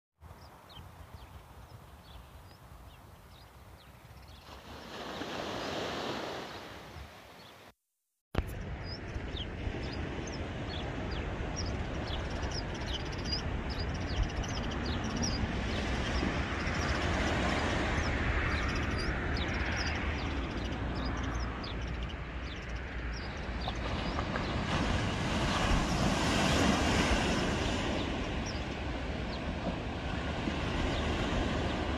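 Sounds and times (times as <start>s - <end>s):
surf washing onto beach: 4.4s - 7.4s, 14.7s - 21.1s, 23.5s - 31.9s
wind rumbling on microphone: 8.4s - 31.9s.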